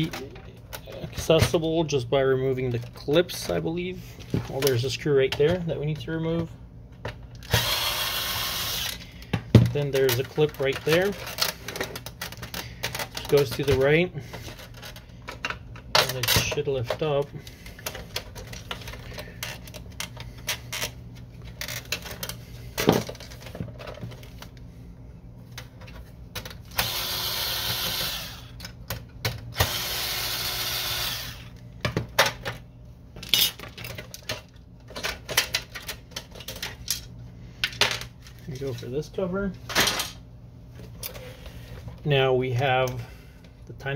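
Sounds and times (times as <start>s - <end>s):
cordless drill running: 7.4s - 9.0s, 26.7s - 28.6s, 29.6s - 31.5s
plastic parts clicking and knocking: 33.2s - 38.8s.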